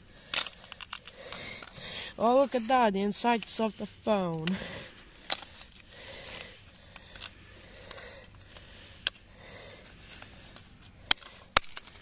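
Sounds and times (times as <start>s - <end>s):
clicks of phone parts handled: 0.3s - 1.8s, 10.1s - 12.0s.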